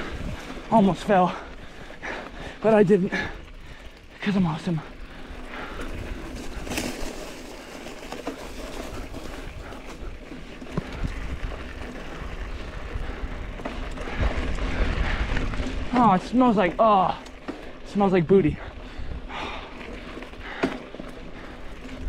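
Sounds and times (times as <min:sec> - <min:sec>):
wind on microphone: 0:00.0 - 0:00.7, 0:10.8 - 0:15.9
bike knocking and rattling: 0:00.0 - 0:22.0
bike tyre and drivetrain noise: 0:00.0 - 0:22.0.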